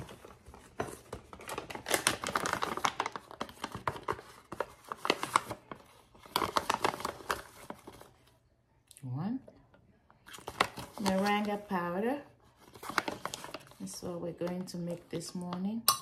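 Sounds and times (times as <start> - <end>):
packaging pouch crinkling: 0.1 - 8.2, 12.6 - 13.8.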